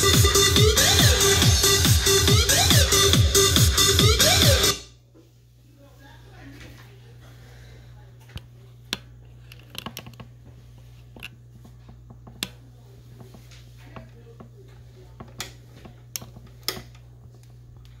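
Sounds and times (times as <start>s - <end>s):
steady low hum: 4.8s - 18.0s.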